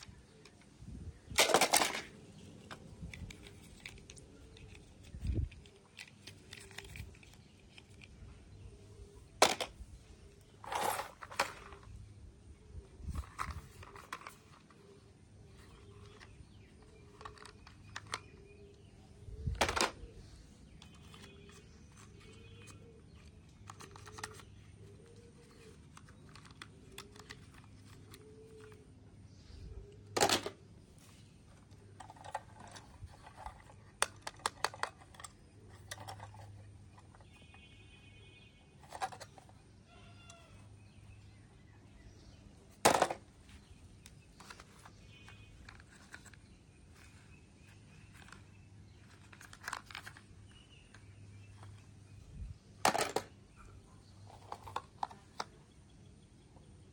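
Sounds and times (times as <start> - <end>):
plastic toy trucks clicking and rattling: 1.3 - 8.6, 9.3 - 12.1, 13.0 - 29.0, 29.9 - 41.4, 42.1 - 52.2, 52.8 - 55.8
toy truck knocks: 42.8 - 43.2.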